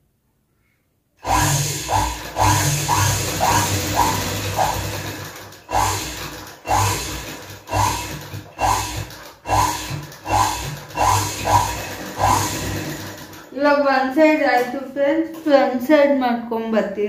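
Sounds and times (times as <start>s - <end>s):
sewing machine stitching: 1.2s - 13.6s.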